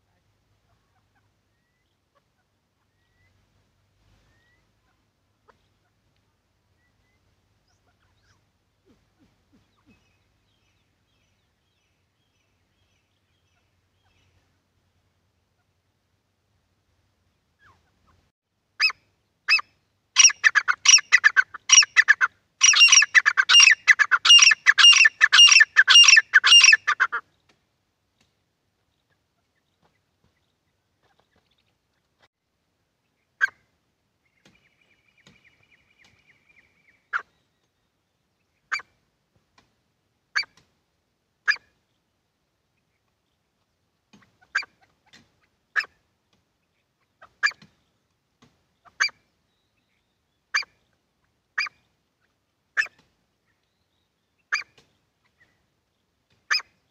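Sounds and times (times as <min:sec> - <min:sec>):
francolins calling harshly: 0:20.2 - 0:27.2.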